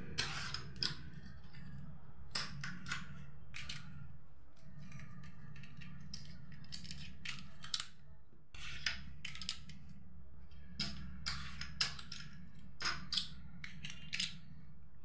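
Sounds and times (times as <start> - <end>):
plastic dominoes clicking: 0.1 - 1.2, 2.3 - 4.0, 4.9 - 8.0, 8.6 - 9.9, 10.8 - 14.5.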